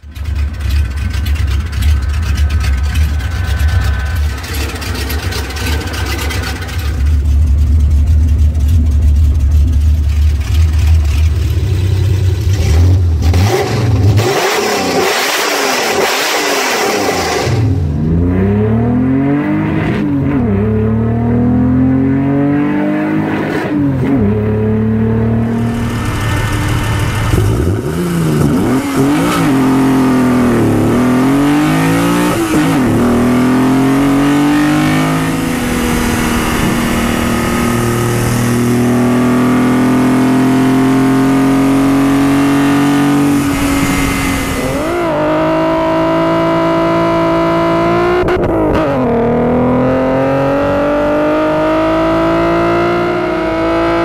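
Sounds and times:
car engine idling: 0.0s - 13.3s, 25.2s - 46.8s
car engine revving through gears: 10.4s - 54.0s
engine intake rush: 25.4s - 31.2s, 31.8s - 39.9s, 42.6s - 46.4s.

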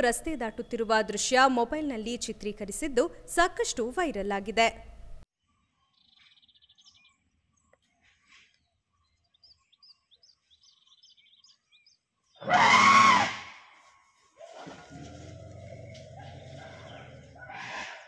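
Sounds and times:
elephant trumpeting: 12.4s - 13.6s, 16.2s - 18.0s.

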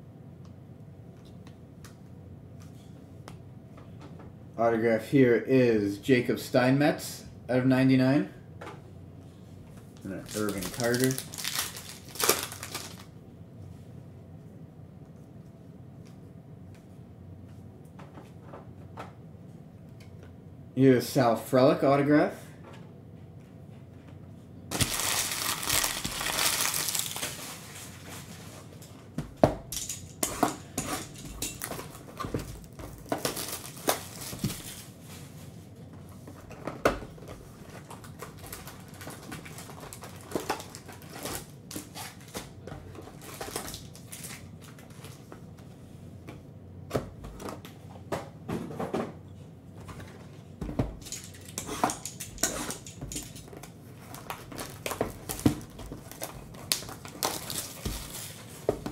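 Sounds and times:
shrink wrap being torn: 10.0s - 13.1s, 24.7s - 27.8s, 33.0s - 34.8s, 54.1s - 58.5s
wrapper crinkling: 10.0s - 13.1s, 24.7s - 28.6s, 31.5s - 35.0s, 37.8s - 42.4s, 43.2s - 45.2s, 51.0s - 58.7s.

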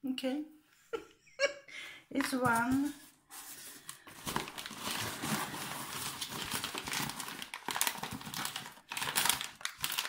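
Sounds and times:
packing paper crinkling: 2.2s - 10.0s.

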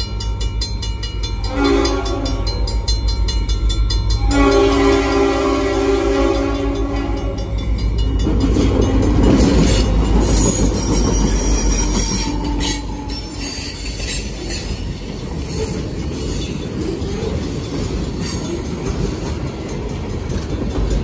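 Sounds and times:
train horn: 1.4s - 2.8s, 4.1s - 7.6s.

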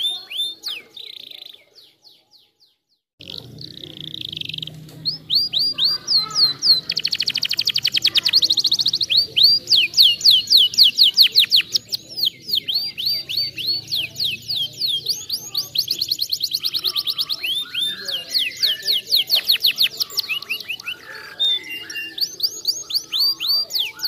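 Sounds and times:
canary singing: 0.0s - 24.0s.

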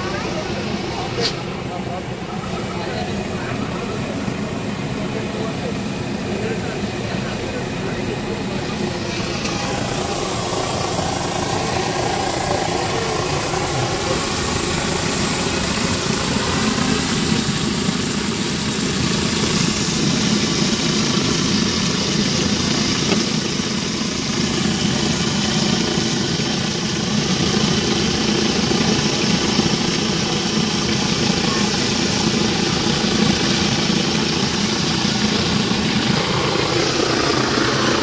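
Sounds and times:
fish deep-frying in oil: 9.0s - 38.0s.

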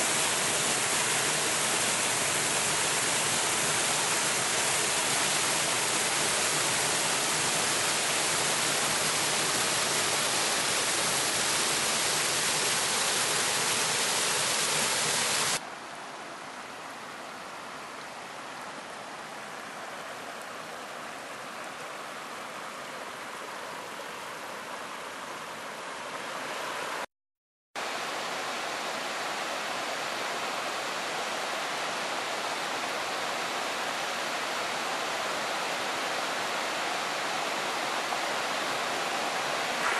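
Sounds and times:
water rushing over rock: 0.0s - 15.6s, 38.8s - 39.9s
softer flowing water: 35.0s - 39.9s.

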